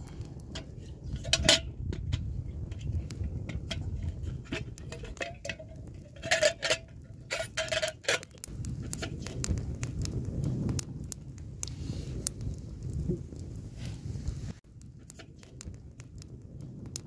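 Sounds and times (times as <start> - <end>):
metal cookware clinking: 0.6 - 8.4.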